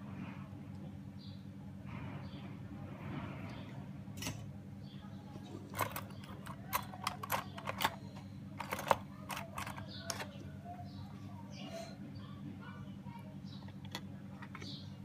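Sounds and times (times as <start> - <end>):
steady low hum: 0.0 - 15.0
hand tools clicking and tapping: 5.8 - 10.4.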